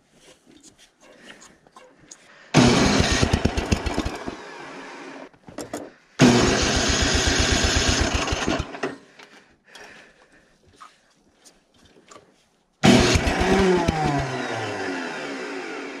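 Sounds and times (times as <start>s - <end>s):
electric starter cranking engine: 2.5s - 5.3s, 6.2s - 9.0s, 12.8s - 16.0s.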